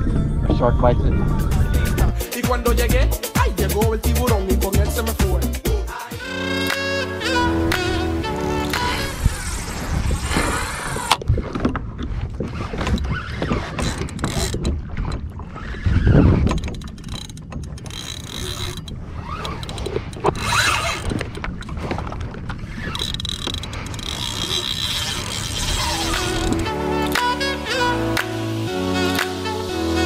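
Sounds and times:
water slapping against kayak hull: 8.7s - 27.4s.

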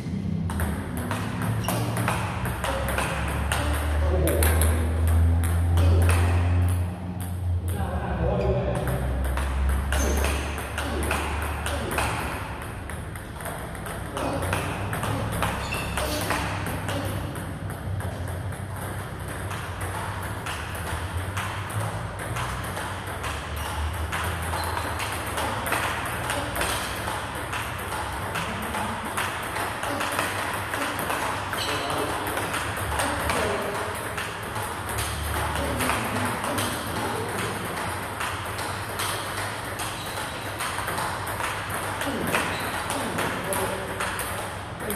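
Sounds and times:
table tennis ball clicks: 8.8s - 28.5s.

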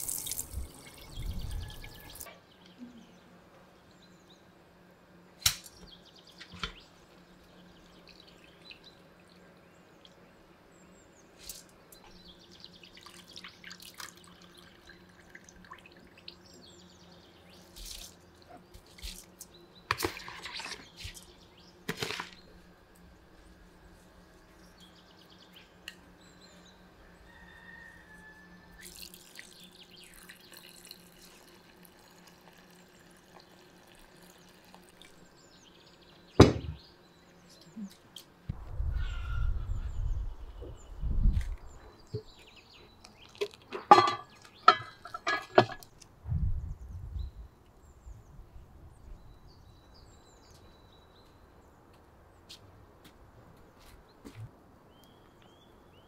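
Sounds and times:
water pouring from bowl: 0.0s - 1.1s, 28.8s - 35.2s
bowl and pot clattering: 43.3s - 45.9s.

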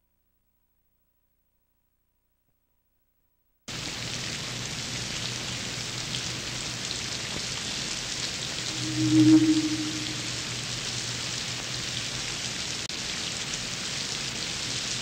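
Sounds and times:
low tone: 8.7s - 10.9s.

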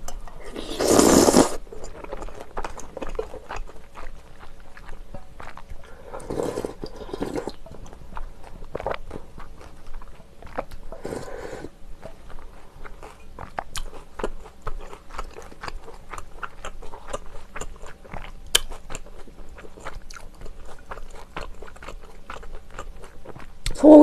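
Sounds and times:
sip of broth: 0.4s - 1.6s, 5.9s - 7.6s, 11.0s - 11.7s
chewing and crunching: 1.5s - 23.8s.

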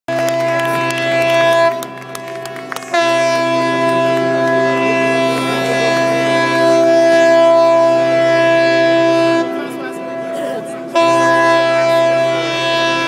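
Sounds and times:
steady low tone: 0.1s - 13.0s
wind instruments sustained notes: 0.1s - 13.0s.

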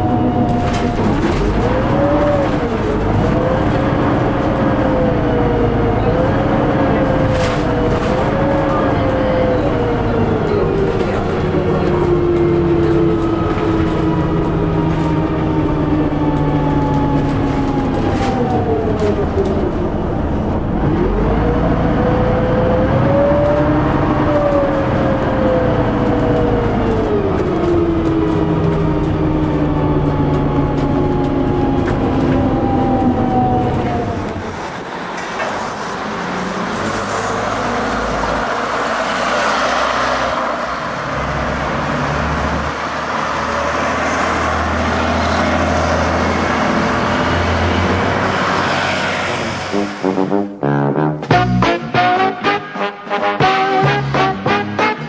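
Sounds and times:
diesel bus engine: 0.0s - 50.6s
street traffic: 0.0s - 55.0s.

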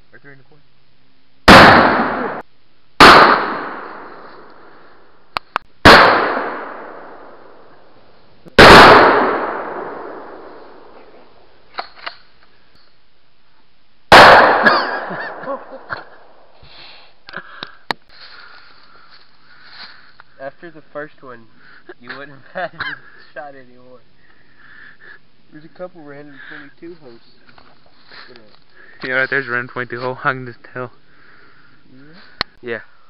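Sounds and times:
gunshots echoing: 1.5s - 2.4s, 3.0s - 4.8s, 5.8s - 7.7s, 8.6s - 11.0s, 14.1s - 15.9s.

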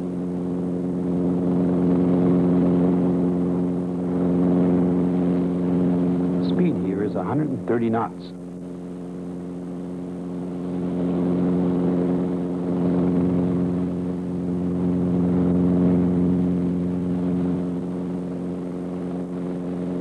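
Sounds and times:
helicopter rotor and engine drone: 0.0s - 20.0s.

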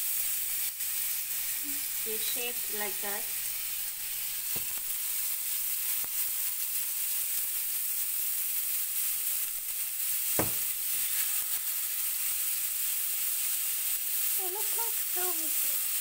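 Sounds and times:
oil sizzling on hot pan: 0.0s - 16.0s
sharp tap: 10.4s - 10.7s.

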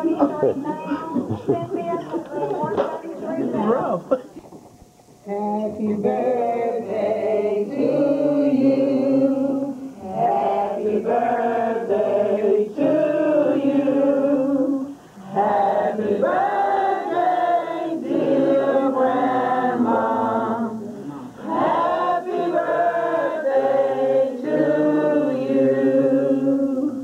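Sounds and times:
group singing unaccompanied: 5.2s - 27.0s.

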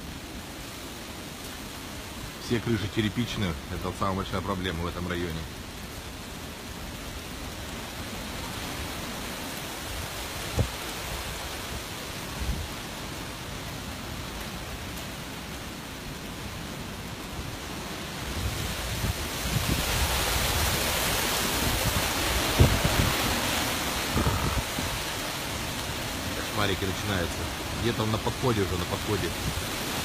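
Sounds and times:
rain: 0.0s - 30.0s
wind gusts buffeting microphone: 8.0s - 12.9s, 17.6s - 27.9s, 29.0s - 30.0s.

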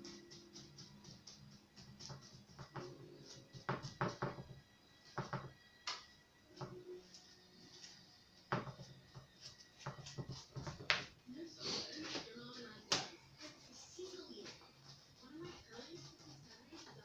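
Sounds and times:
faint background music: 0.0s - 17.0s
paintbrush knocking on paint pot: 2.0s - 5.6s, 8.5s - 11.1s.

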